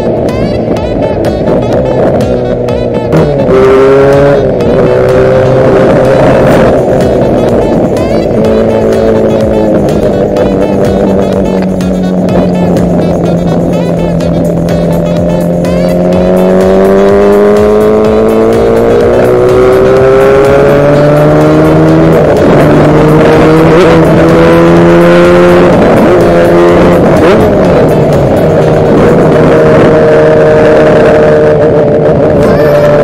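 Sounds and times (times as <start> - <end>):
two-stroke engine accelerating: 0.0 - 33.0.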